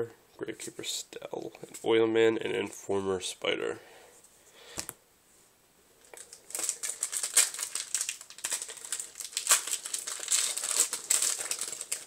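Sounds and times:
foil wrapper crinkling: 6.0s - 12.0s.

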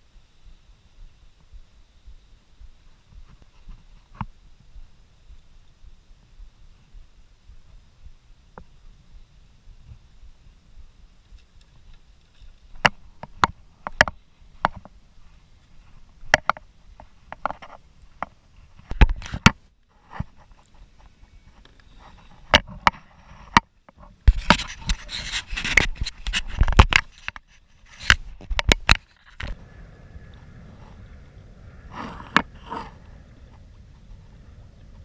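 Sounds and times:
kayak gear knocks and clicks: 25.6s - 29.6s.

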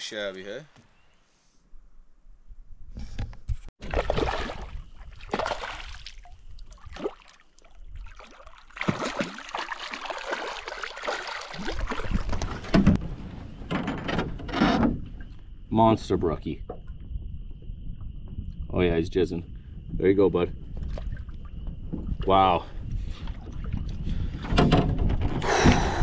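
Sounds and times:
water splashing and sloshing: 3.8s - 18.7s, 20.6s - 26.0s.

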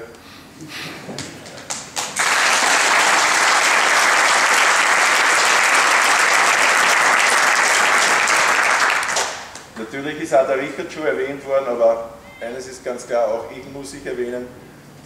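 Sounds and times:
crowd applauding: 1.2s - 9.7s.

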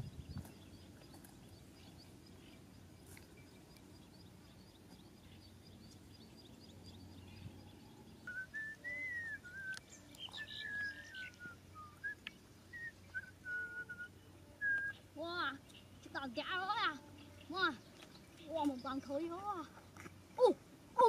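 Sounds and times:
person whistling a tune: 8.3s - 15.0s.

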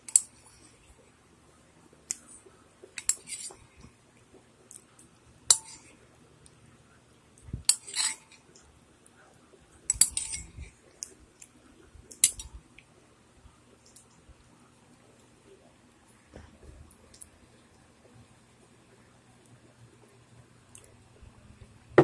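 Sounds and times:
tableware clicking and clinking: 3.0s - 3.6s, 5.5s - 5.9s, 7.7s - 8.4s, 9.9s - 10.6s, 12.1s - 12.6s.

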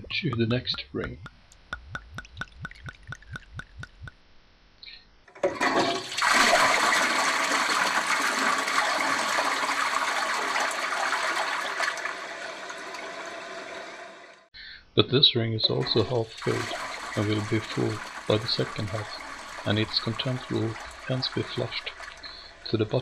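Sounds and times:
faint drips: 0.0s - 4.2s, 15.6s - 23.0s
toilet flushing: 5.4s - 14.5s, 15.7s - 23.0s.

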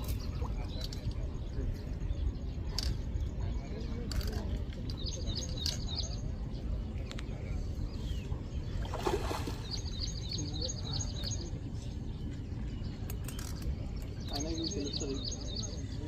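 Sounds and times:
bird chirping: 0.0s - 16.0s
object splashing into water: 8.8s - 9.7s.

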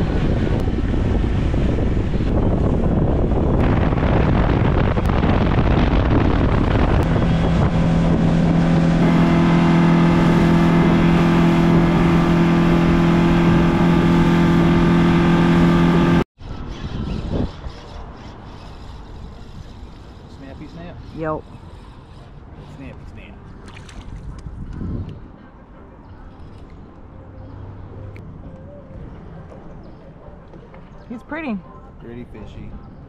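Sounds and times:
outboard motor running: 0.0s - 16.2s
wind on microphone: 0.0s - 22.6s, 23.6s - 25.5s.

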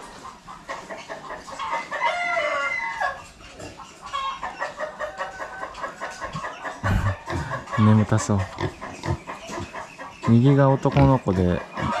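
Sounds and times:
chicken clucking: 0.0s - 12.0s
rooster crowing: 2.0s - 3.2s.

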